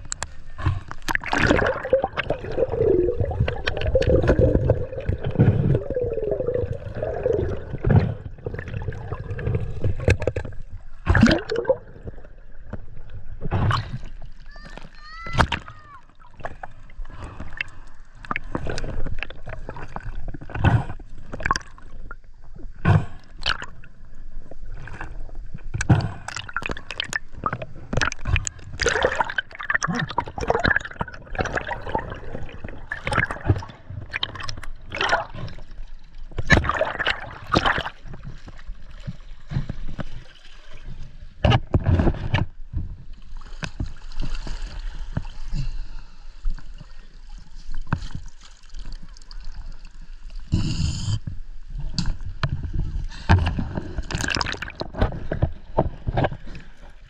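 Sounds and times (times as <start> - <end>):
water sloshing and gurgling: 0.0 - 57.0
hiss of moving water: 50.4 - 51.4.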